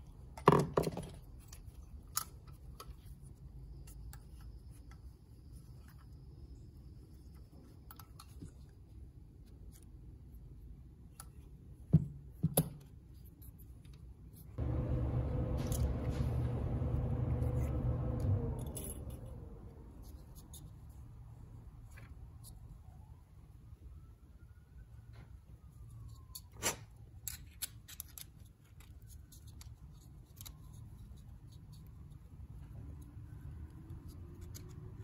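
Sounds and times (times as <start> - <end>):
low hum: 14.6 - 20.6
metallic clicks and handling: 27.2 - 31.9.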